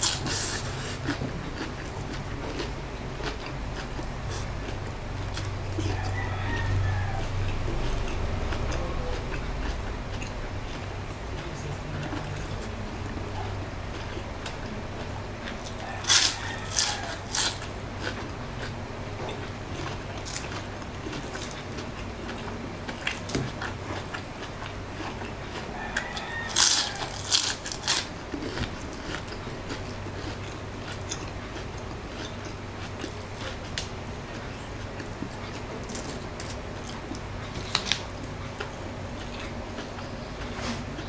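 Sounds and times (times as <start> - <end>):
person biting crispy spring rolls: 0.0 - 1.0, 15.8 - 17.6, 20.2 - 20.6, 26.0 - 28.1
low steady hum: 0.0 - 41.0.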